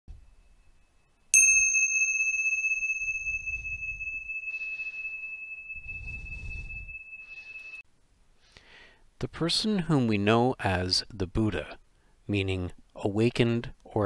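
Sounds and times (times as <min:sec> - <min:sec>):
small high-pitched bell ringing: 0:00.1 - 0:07.8.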